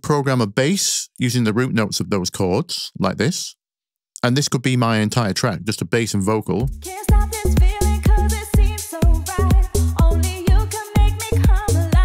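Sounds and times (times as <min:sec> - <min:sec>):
kick drum: 0:07.1 - 0:12.0.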